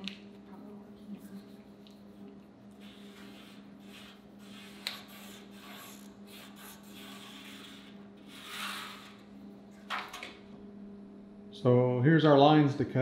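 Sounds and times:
marker pen scratching on metal: 2.7s - 9.2s.

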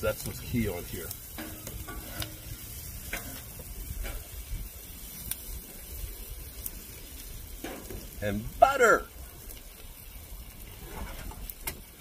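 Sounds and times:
vegetables sizzling on a griddle: 0.0s - 12.0s
metal spatula scraping steel plate: 1.4s - 4.2s.

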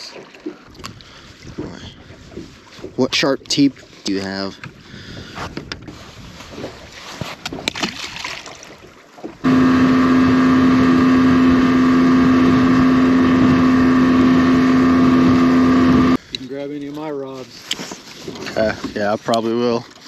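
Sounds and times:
boat motor humming: 9.4s - 16.2s.

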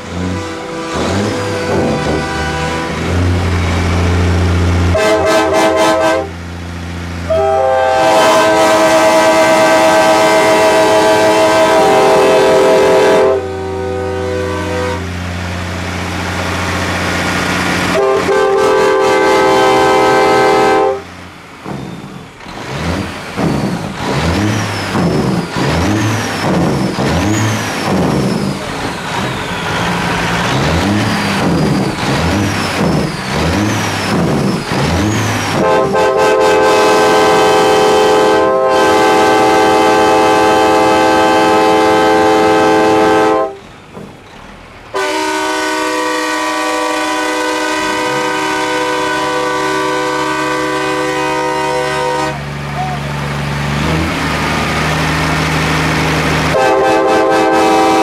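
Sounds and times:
air horns blowing chord: 0.0s - 6.4s, 7.3s - 15.2s, 17.9s - 21.1s, 35.6s - 43.6s, 44.9s - 52.4s, 56.5s - 58.0s
diesel engine revving: 0.0s - 58.0s.

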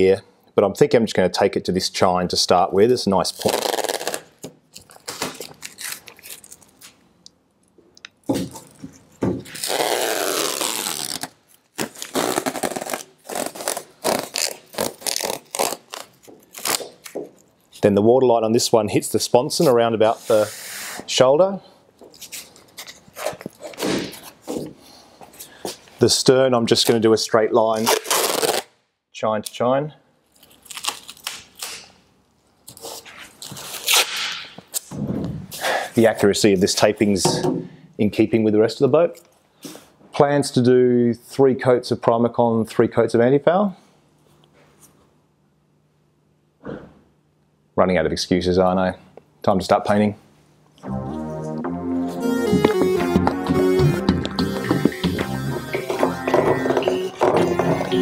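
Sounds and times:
masking tape ripping: 3.2s - 7.0s, 9.4s - 17.2s, 27.8s - 28.7s, 30.4s - 32.0s, 32.6s - 34.9s.

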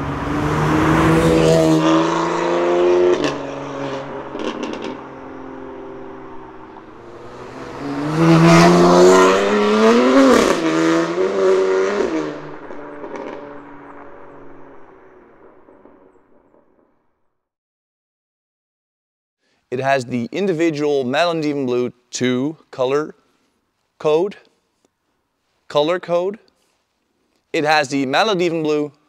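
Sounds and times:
car engine accelerating past: 0.0s - 16.8s
exhaust pops: 3.1s - 5.6s.

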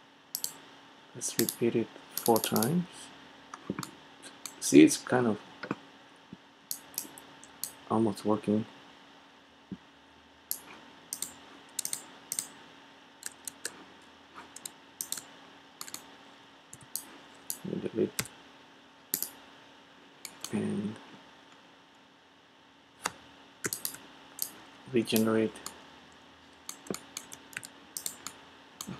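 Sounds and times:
mouse clicks: 0.4s - 0.6s, 2.2s - 2.7s, 10.5s - 12.5s, 14.5s - 16.0s, 19.1s - 19.3s, 20.2s - 20.6s, 23.0s - 24.6s, 26.7s - 28.9s
keyboard keystrokes: 11.2s - 12.5s, 14.6s - 15.2s, 15.8s - 16.0s, 23.0s - 24.5s, 26.7s - 28.9s.

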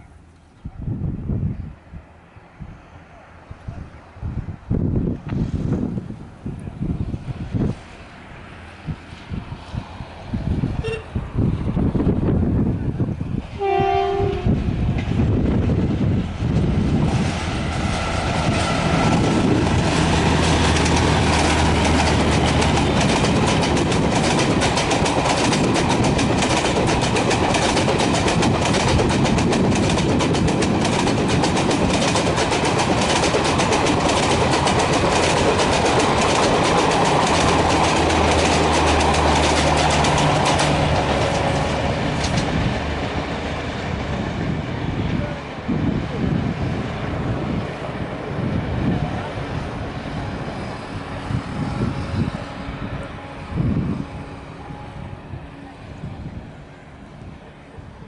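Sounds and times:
heavy train rumble: 0.0s - 58.0s
train wheels clattering over rail joints: 16.5s - 43.4s.

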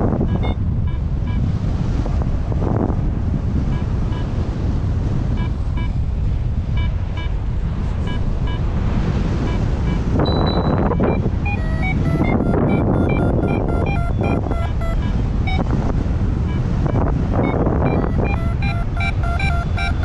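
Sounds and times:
wind rushing over microphone: 0.0s - 20.0s
variometer beeping: 0.2s - 1.5s, 3.7s - 4.3s, 5.3s - 6.0s, 6.6s - 8.7s, 9.4s - 20.0s.

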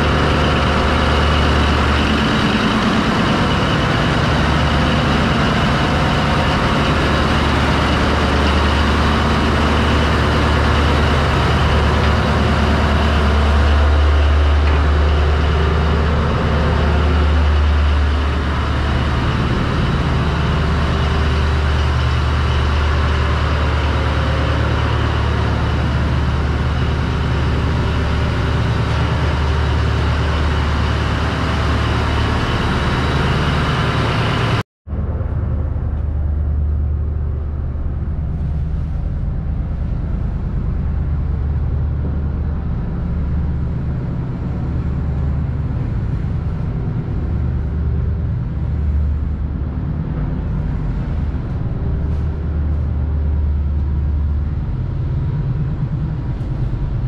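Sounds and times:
ship machinery humming: 0.0s - 57.0s.

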